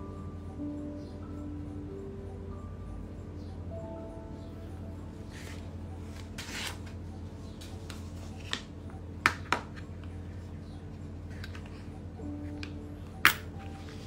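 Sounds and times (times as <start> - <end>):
steady low hum: 0.0 - 14.0
paper sliding and rustling: 5.4 - 7.0.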